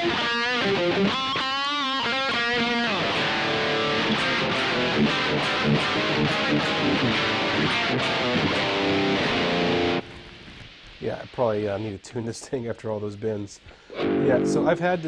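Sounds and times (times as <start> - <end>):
electric guitar playing: 0.0 - 10.7, 13.9 - 15.0.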